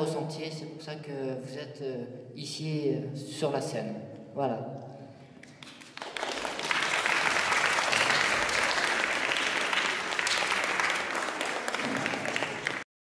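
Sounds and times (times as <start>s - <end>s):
people applauding: 5.4s - 12.9s.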